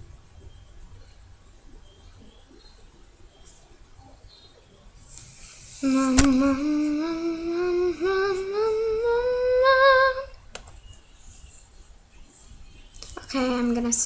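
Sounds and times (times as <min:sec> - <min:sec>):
girl humming rising note: 0:05.8 - 0:10.4.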